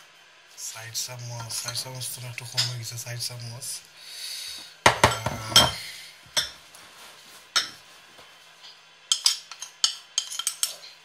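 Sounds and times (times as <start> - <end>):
teaspoon clinking on ceramic bowl: 9.1 - 10.9.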